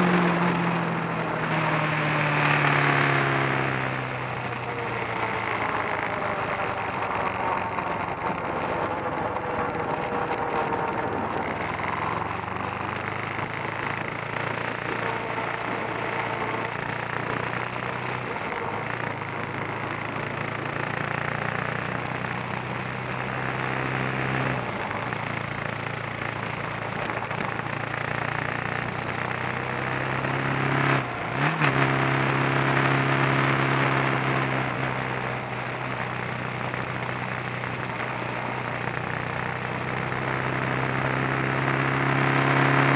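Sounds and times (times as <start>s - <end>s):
motorcycle engine running: 0.0s - 42.9s
wind and road noise: 0.0s - 42.9s.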